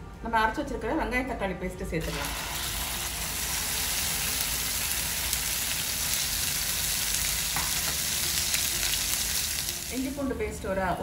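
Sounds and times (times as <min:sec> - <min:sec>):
paste sizzling in hot oil: 0:02.0 - 0:10.4.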